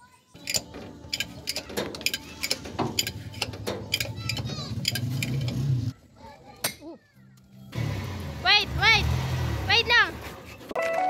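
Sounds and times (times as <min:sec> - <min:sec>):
bottle jack metallic clicks: 0:00.4 - 0:05.6.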